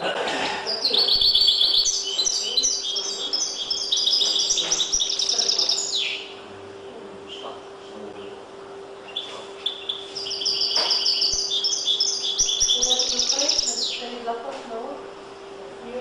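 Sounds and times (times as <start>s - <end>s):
finch singing trills: 0.6s - 6.4s, 9.0s - 14.3s.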